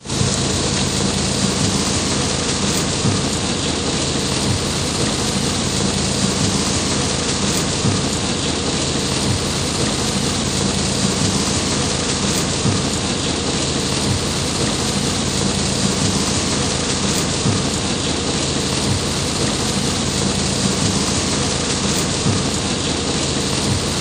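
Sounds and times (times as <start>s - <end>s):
heavy rain on pavement: 0.0s - 24.0s.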